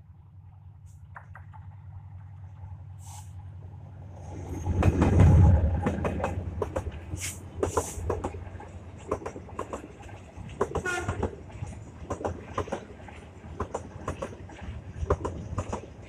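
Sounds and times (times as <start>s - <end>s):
diesel locomotive engine rumble: 0.0s - 16.0s
wheels clicking over rail joints: 4.7s - 16.0s.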